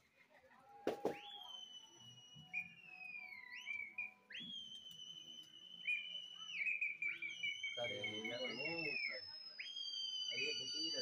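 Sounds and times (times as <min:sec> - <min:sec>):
person whistling shrilly: 0:01.0 - 0:11.0.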